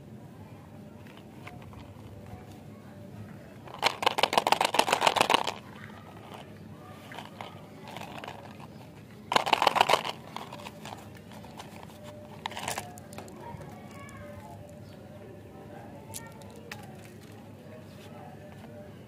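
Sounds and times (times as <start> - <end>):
cardboard tube crackling: 3.6 - 14.5.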